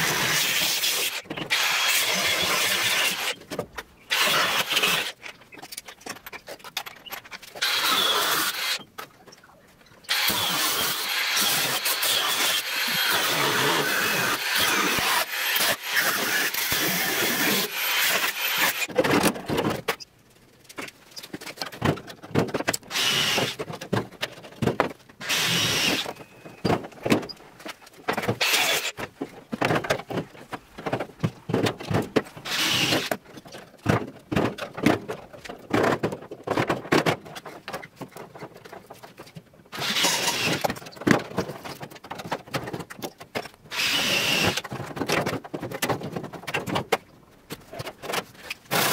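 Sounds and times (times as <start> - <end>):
angle grinder cutting steel: 0.0 - 3.4, 4.1 - 5.1, 7.6 - 8.8, 10.1 - 18.9, 28.4 - 28.9, 39.8 - 40.6.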